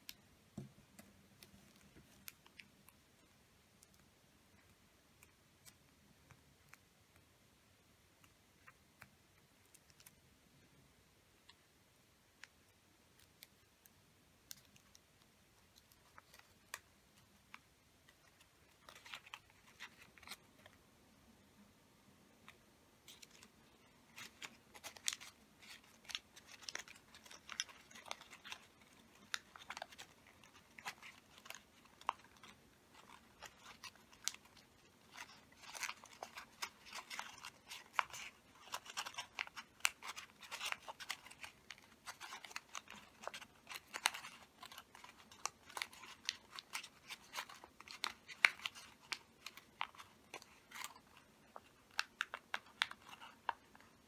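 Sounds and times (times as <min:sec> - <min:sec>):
paper crackling and rustling: 0:15.8 - 0:20.8, 0:23.0 - 0:54.0.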